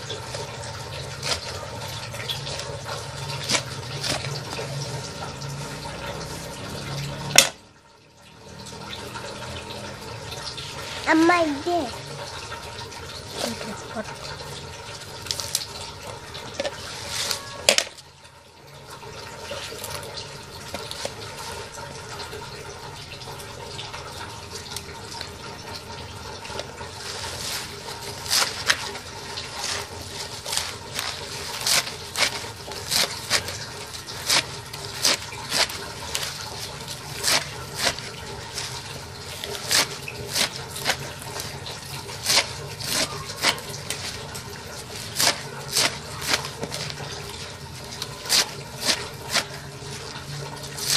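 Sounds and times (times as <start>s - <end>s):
knife chopping on metal tray: 29.6s - 38.7s, 39.4s - 44.2s, 44.8s - 47.0s, 48.0s - 49.6s.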